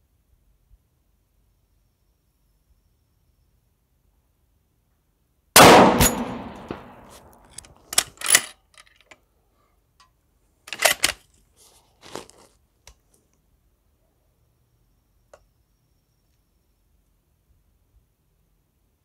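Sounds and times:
bullet hitting steel target: 5.6 - 7.3
rifle shot echoing: 5.6 - 7.4.

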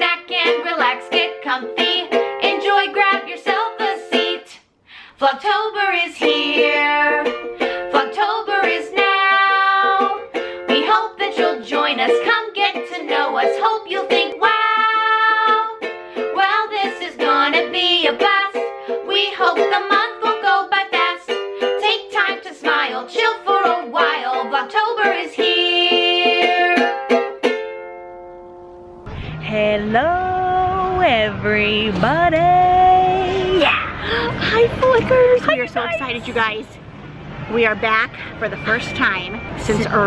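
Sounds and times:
strummed ukulele: 0.0 - 4.6, 5.4 - 31.2, 31.9 - 36.5
women singing together: 0.0 - 4.6, 5.2 - 26.9, 34.4 - 36.2.

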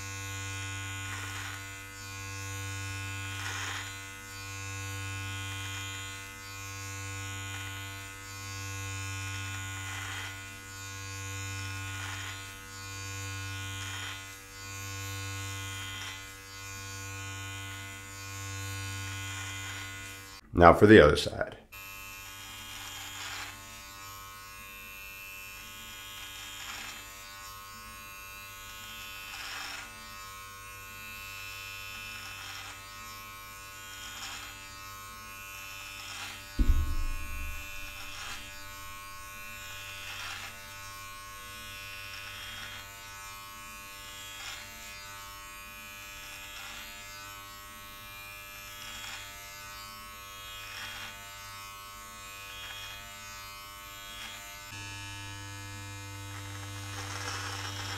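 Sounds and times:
electric trimmer buzzing: 0.0 - 20.4, 21.7 - 57.9
loud low thump: 36.6 - 40.0.

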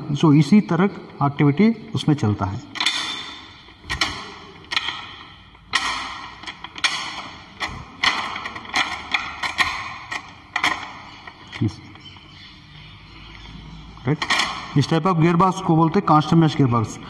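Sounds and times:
gear lever metallic clacks: 2.7 - 12.2, 14.1 - 15.0.

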